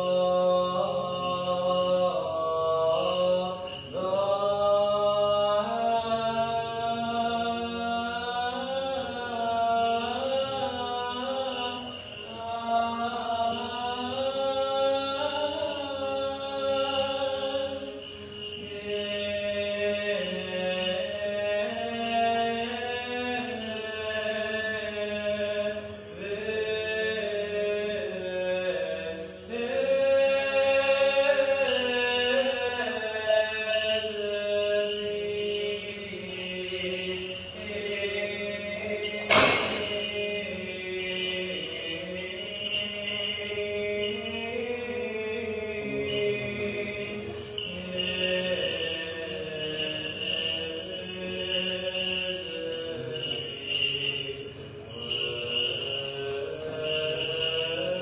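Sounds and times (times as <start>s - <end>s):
held low vocal drone: 0.0s - 58.0s.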